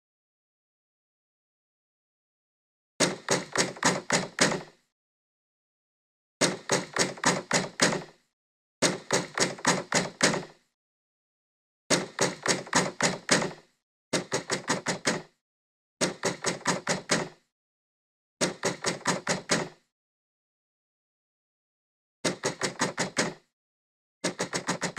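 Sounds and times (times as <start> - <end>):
knocking on a door: 3.0 - 4.8, 6.4 - 8.2, 8.8 - 10.6, 11.9 - 15.4, 16.0 - 17.5, 18.4 - 19.8, 22.3 - 23.5, 24.2 - 24.9.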